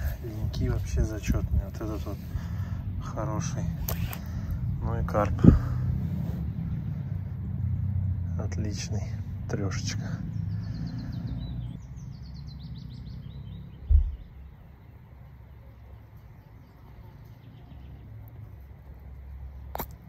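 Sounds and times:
low rumble: 0:00.0 - 0:14.6
songbird singing: 0:00.0 - 0:20.0
dull low thump: 0:13.8 - 0:14.4.

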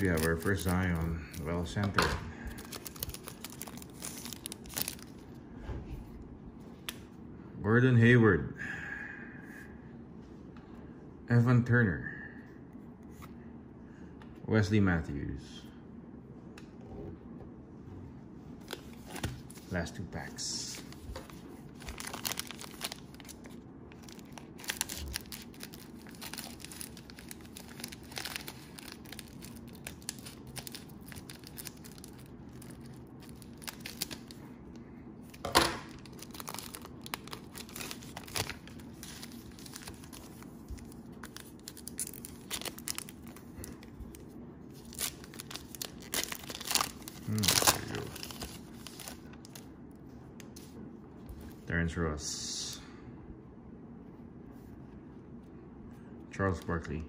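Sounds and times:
plastic wrapper tearing and crinkling: 0:00.0 - 0:05.2, 0:21.8 - 0:34.4, 0:35.2 - 0:49.7.

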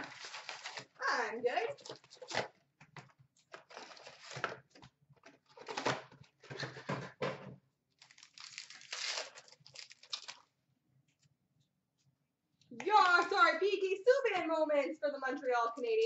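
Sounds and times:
card packs crinkling: 0:00.0 - 0:01.0, 0:01.8 - 0:02.6, 0:03.4 - 0:04.7, 0:07.9 - 0:10.5
pack wrapper tearing: 0:08.0 - 0:10.5.

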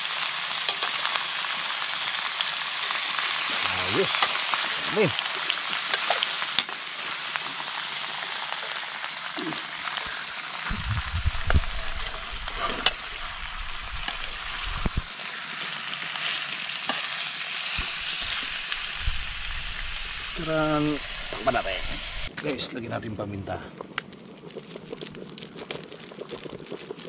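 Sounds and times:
meat sizzling in a frying pan: 0:00.0 - 0:22.3, 0:24.3 - 0:27.0
metal spoon scraping a pan: 0:11.8 - 0:13.1.

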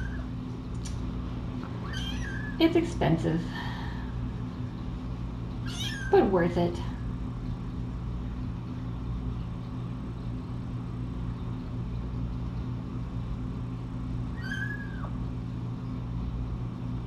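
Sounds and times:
steady low hum: 0:00.0 - 0:17.0
kitten mewing: 0:01.8 - 0:02.6, 0:05.6 - 0:06.2, 0:14.3 - 0:15.2.

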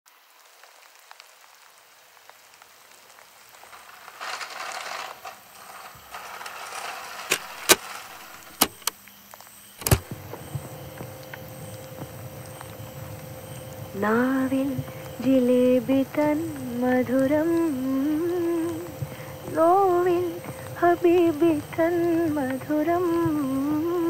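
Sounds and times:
faint tape hiss: 0:00.1 - 0:24.0
rustling handling noise: 0:03.5 - 0:08.9
cassette mechanism clicks: 0:07.2 - 0:09.0, 0:09.8 - 0:10.2.

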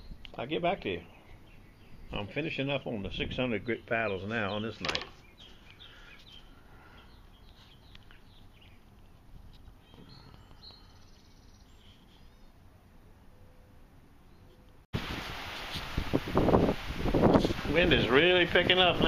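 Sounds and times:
small birds chirping: 0:00.0 - 0:12.7.

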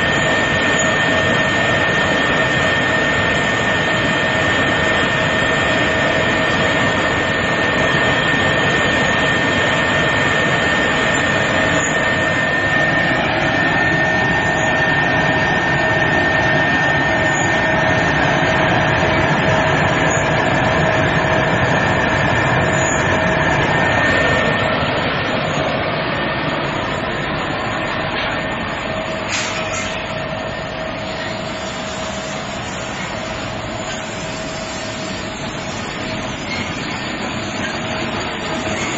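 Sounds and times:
higher mechanical whine: 0:00.0 - 0:38.9.

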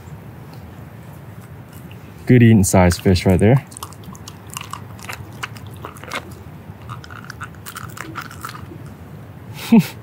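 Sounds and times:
wet clicks and crackles from fish: 0:03.3 - 0:08.9.

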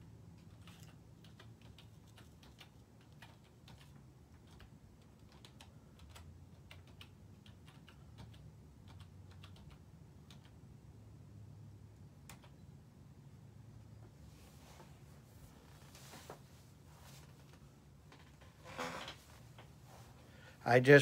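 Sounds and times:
typing on a keyboard: 0:00.4 - 0:10.6, 0:12.2 - 0:12.7.

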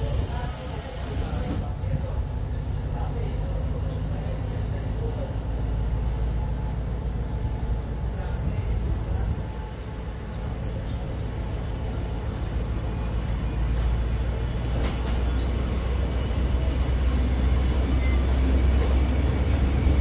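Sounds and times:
train carriages rumbling: 0:00.0 - 0:20.0.

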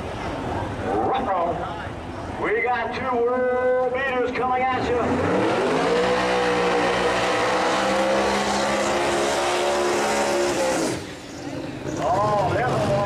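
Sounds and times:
car engine revving: 0:04.8 - 0:11.3.

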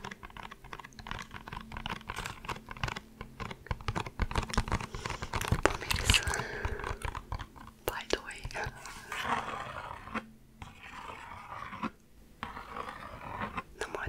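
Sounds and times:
fingernails tapping on cardboard box: 0:00.0 - 0:05.8.

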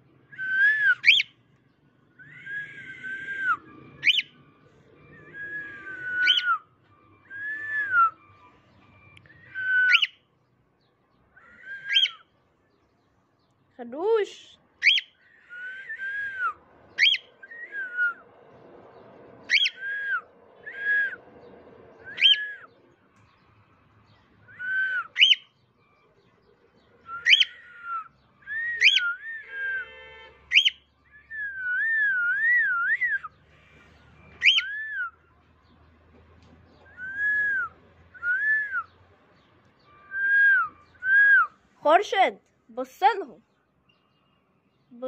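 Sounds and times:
cockatiel whistling: 0:00.4 - 0:01.3, 0:02.2 - 0:04.4, 0:05.1 - 0:08.2, 0:09.3 - 0:10.2, 0:11.5 - 0:12.2, 0:14.8 - 0:18.2, 0:19.5 - 0:21.2, 0:22.0 - 0:22.7, 0:24.5 - 0:25.5, 0:27.1 - 0:29.9, 0:30.5 - 0:33.4, 0:34.4 - 0:35.2, 0:36.8 - 0:39.0, 0:39.9 - 0:41.6.

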